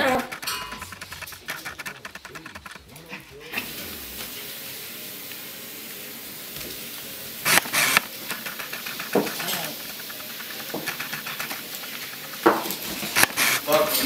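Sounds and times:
puppies scuffling bumps: 0:00.0 - 0:03.8, 0:07.7 - 0:14.0
puppy claws scrabbling on floor: 0:00.0 - 0:03.8, 0:07.5 - 0:14.0
dog vocalisation: 0:00.0 - 0:03.9, 0:07.5 - 0:13.7.

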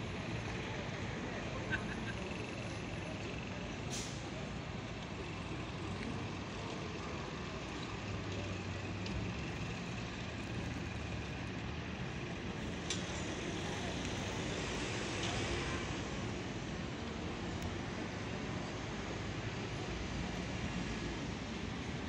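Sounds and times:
bus engines humming: 0:00.0 - 0:22.0
hiss: 0:03.9 - 0:04.2.

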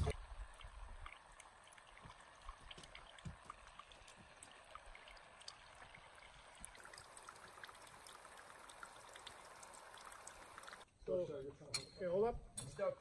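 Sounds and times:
water droplets ticking on wood: 0:00.4 - 0:10.8.

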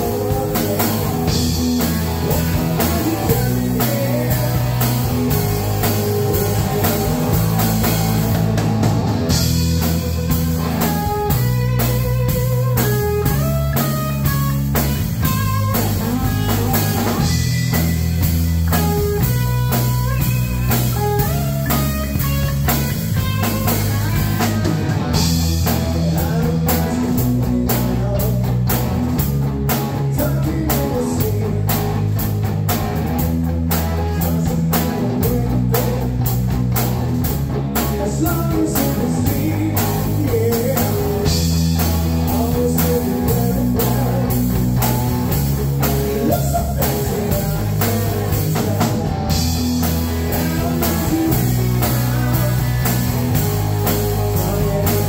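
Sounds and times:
lead guitar line: 0:00.0 - 0:55.0
rock band playing: 0:00.0 - 0:55.0.

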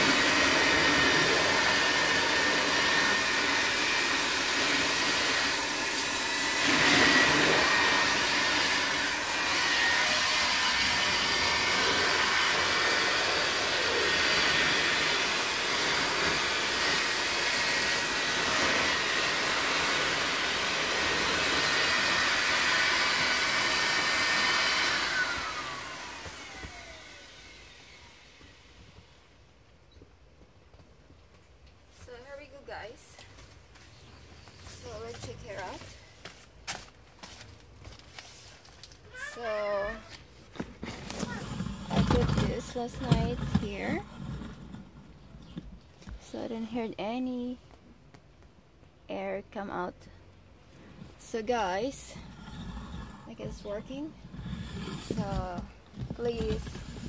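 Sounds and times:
electric air pump humming: 0:00.0 - 0:29.4, 0:38.1 - 0:44.4, 0:53.3 - 0:57.0.

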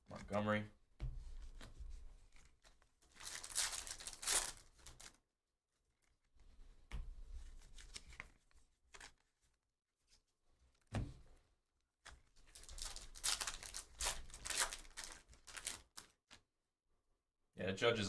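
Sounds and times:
cards rustling and clicking: 0:01.2 - 0:05.2, 0:06.0 - 0:09.6, 0:12.0 - 0:16.4
wrapper ripping open: 0:03.1 - 0:05.2, 0:12.5 - 0:16.4.

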